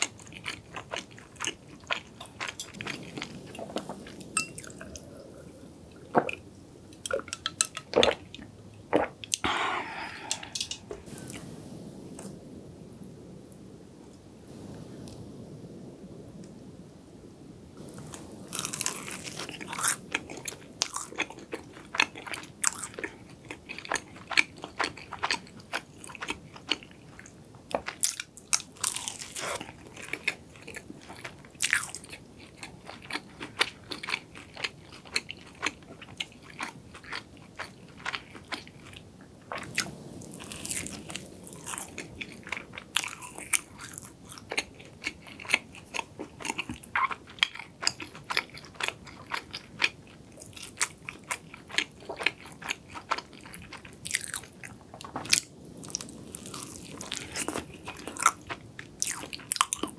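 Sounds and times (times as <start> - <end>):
crunchy pastry chewing: 0.0 - 5.4, 17.8 - 59.9.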